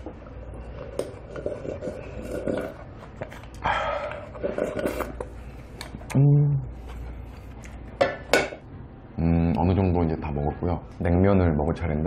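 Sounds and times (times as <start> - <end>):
person gulping and slurping broth: 0.2 - 5.3.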